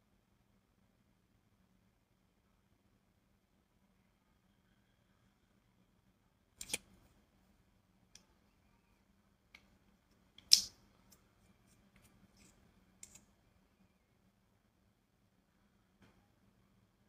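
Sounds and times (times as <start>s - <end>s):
faint low hum: 0.0s - 17.0s
plastic tube clicks and taps: 10.4s - 10.7s.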